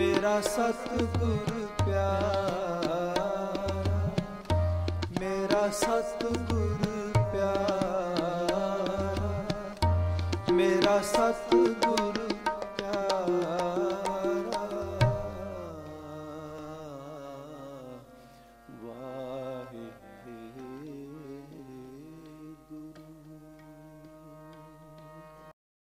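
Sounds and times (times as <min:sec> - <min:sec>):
tabla strokes: 0:00.0 - 0:15.6
harmonium playing: 0:00.0 - 0:25.6.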